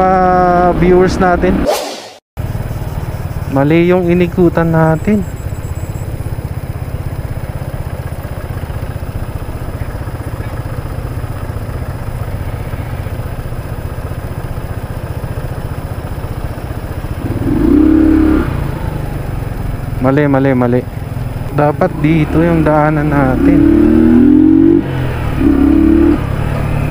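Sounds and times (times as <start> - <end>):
motorcycle engine running: 2.4 - 26.9
loud steady tone: 23.2 - 26.2.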